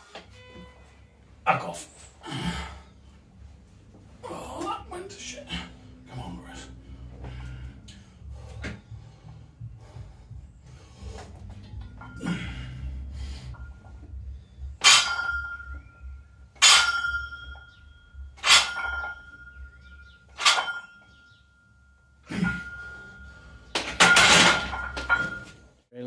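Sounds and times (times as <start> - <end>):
barbell clanking: 11.6 - 12.7, 14.7 - 21.3, 22.3 - 25.6
barbell racked with metal clatter: 14.8 - 15.6, 16.6 - 17.3, 18.4 - 19.3, 20.3 - 20.9, 23.8 - 25.6.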